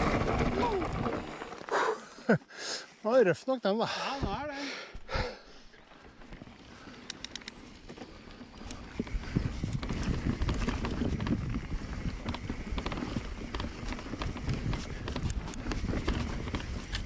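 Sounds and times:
bike rattling over bumpy trail: 0.0s - 2.3s, 5.7s - 17.0s.

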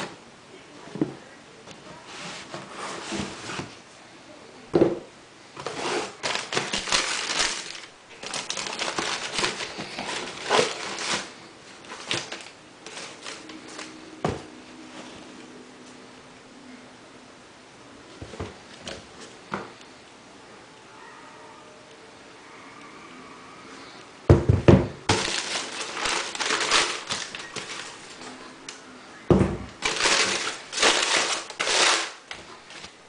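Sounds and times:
tissue paper crinkling: 5.6s - 14.0s, 25.1s - 28.4s, 29.8s - 33.0s.

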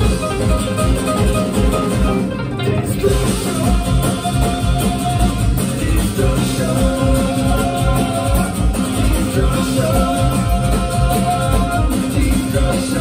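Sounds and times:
metal band with banjo: 0.0s - 13.0s.

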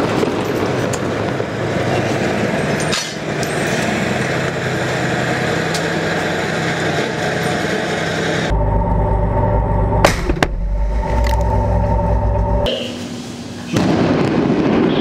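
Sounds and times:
tank engine running: 0.0s - 13.9s.

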